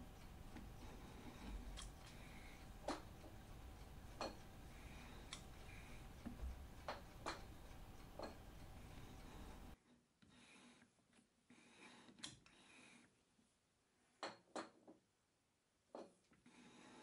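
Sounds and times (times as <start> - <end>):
low hum: 0.0 - 9.8.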